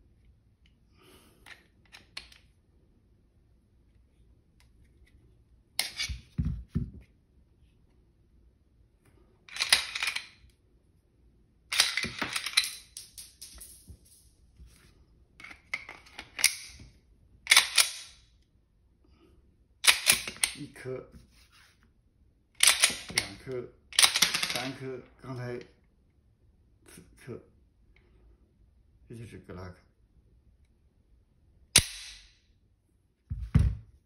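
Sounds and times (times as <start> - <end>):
pistol slide metallic clacks: 17.5 - 18.2, 19.8 - 20.6, 22.6 - 23.4.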